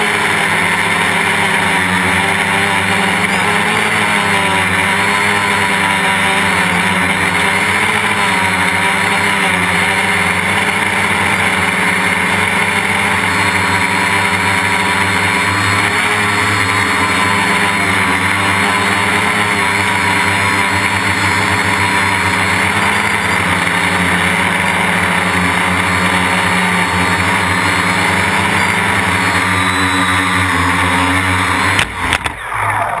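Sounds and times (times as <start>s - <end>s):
drone motors and propellers: 0.0s - 33.0s
drone knocking on paving: 30.9s - 32.4s.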